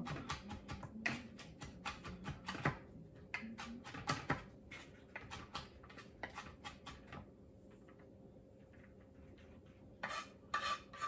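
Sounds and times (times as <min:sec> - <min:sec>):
knife chopping on wooden board: 0:00.0 - 0:07.2.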